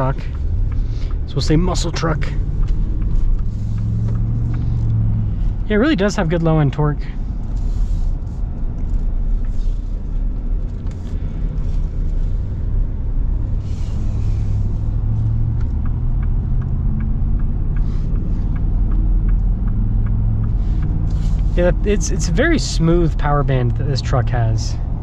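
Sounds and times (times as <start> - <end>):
truck engine droning in cabin: 0.0 - 25.0.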